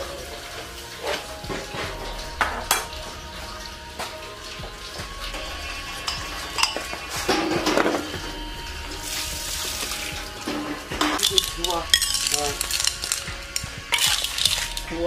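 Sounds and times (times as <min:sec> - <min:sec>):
background voices: 0:00.0 - 0:15.0
food sizzling in a pan: 0:00.0 - 0:15.0
utensil clinking against pan: 0:06.1 - 0:08.1, 0:10.5 - 0:15.0.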